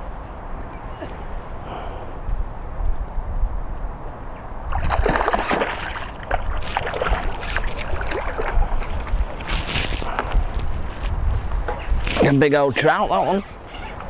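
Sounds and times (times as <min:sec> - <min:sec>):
fish splashing in water: 0:04.7 - 0:09.6.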